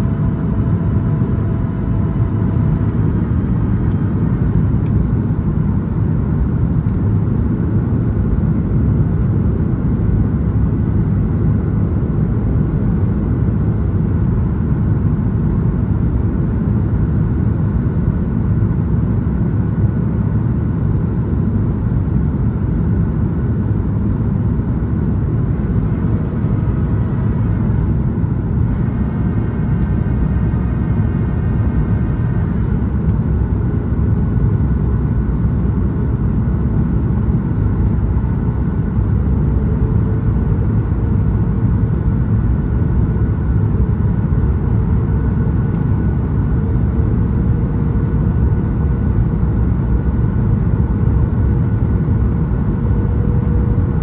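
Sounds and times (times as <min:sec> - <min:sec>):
faint whine: 0:00.0 - 0:05.9, 0:24.0 - 0:54.0
airplane cabin roar: 0:00.0 - 0:54.0.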